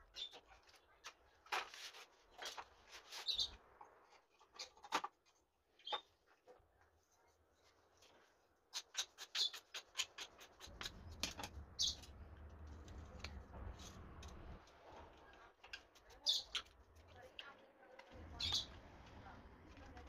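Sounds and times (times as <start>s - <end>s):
bird chirping: 3.2s - 3.6s, 9.2s - 13.4s, 16.2s - 16.8s, 18.2s - 18.8s
low rumble: 10.7s - 15.2s, 18.2s - 20.0s.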